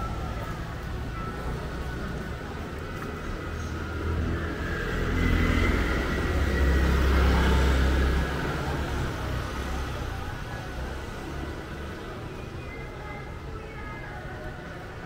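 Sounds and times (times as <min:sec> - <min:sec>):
vehicle passing by: 0:03.5 - 0:11.1.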